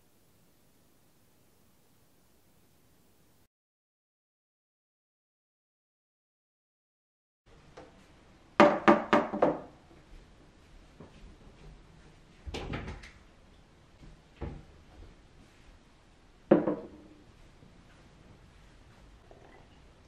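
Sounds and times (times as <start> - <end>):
hard objects knocking: 8.6 - 9.7, 16.5 - 17.0.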